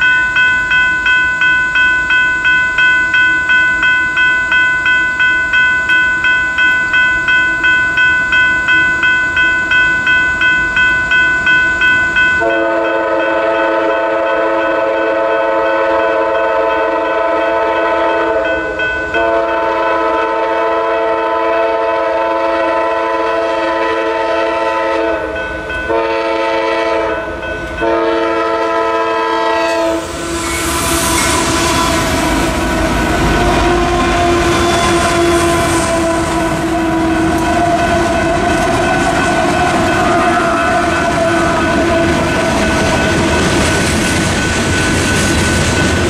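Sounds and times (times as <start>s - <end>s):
train wheels rumbling on rails: 0.0s - 46.0s
train air horn blasts: 12.4s - 18.6s, 19.2s - 25.3s, 25.9s - 42.4s.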